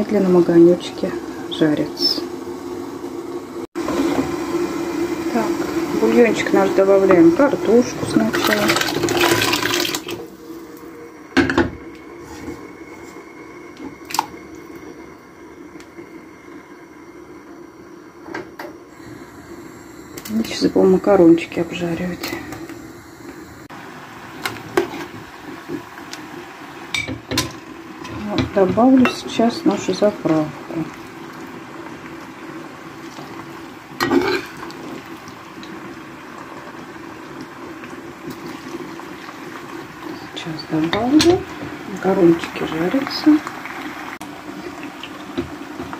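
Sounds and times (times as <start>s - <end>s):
frying pan sizzling: 0.0s - 45.9s
pot of soup boiling: 0.0s - 45.9s
faint steady hum: 10.1s - 45.1s.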